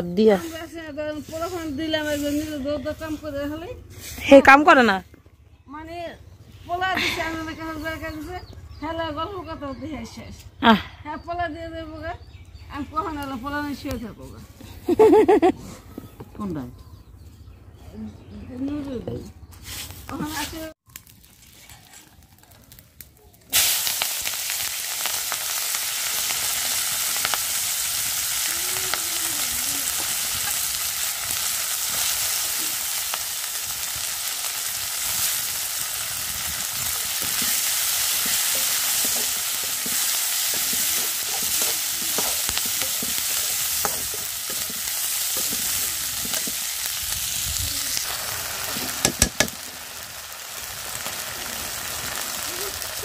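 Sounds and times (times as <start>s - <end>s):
onions sizzling in hot oil: 0.0s - 4.9s, 19.9s - 53.0s.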